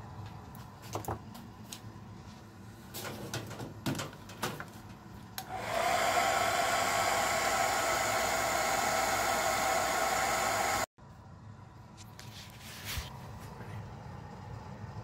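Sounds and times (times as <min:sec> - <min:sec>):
hair dryer blowing: 0:05.4 - 0:10.9.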